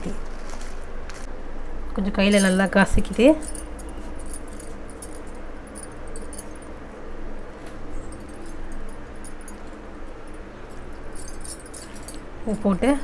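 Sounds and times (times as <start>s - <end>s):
hands crushing dried leaves: 0.0s - 1.3s
glass bangles clinking: 2.3s - 6.8s, 8.0s - 12.9s.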